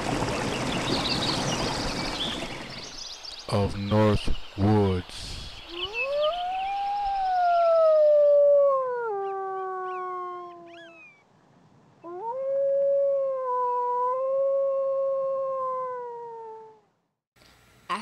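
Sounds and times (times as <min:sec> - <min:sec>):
wolf howling: 0:05.7 - 0:11.0, 0:12.1 - 0:16.8.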